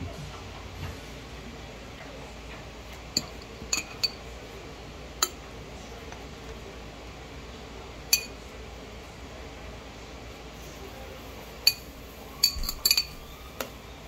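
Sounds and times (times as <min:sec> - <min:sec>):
fork clinking on glass jar: 0:03.2 - 0:04.2, 0:08.1 - 0:08.4, 0:11.6 - 0:13.3.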